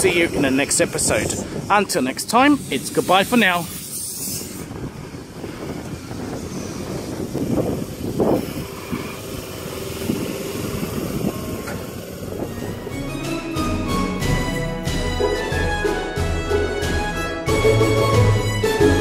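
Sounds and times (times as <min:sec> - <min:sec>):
train wheels rumbling on rails: 0:00.0 - 0:15.8
wheels clacking on rails: 0:04.8 - 0:13.8
music: 0:12.5 - 0:19.0.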